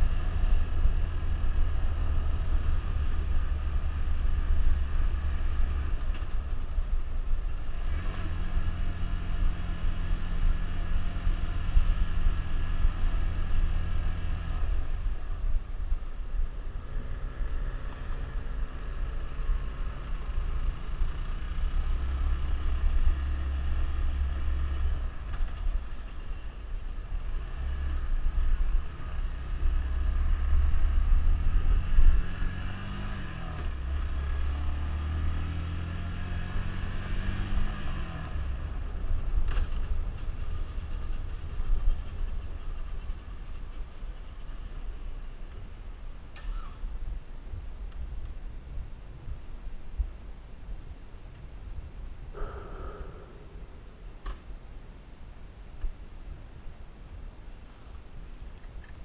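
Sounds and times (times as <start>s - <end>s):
motorcycle engine revving: 27.2s - 44.8s.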